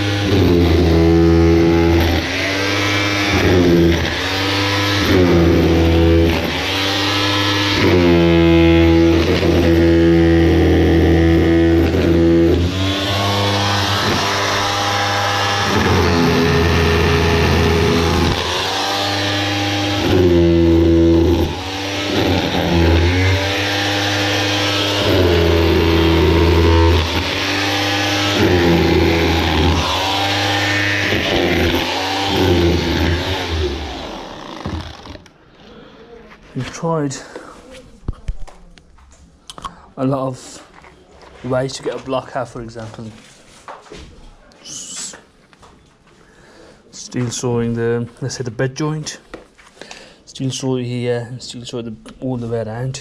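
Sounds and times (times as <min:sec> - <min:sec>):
electric breaker hammer on concrete: 0:00.0 - 0:35.4.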